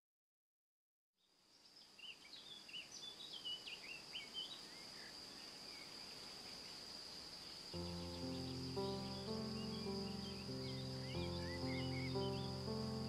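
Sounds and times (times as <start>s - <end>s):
bird chirping: 1.6s - 13.0s
high insect trill: 4.1s - 13.0s.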